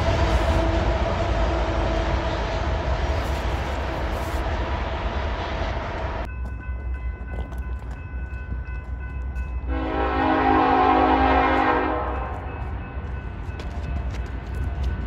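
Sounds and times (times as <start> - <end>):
distant train horn: 0.0 - 3.4, 9.6 - 13.0
freight train passing: 0.0 - 15.0.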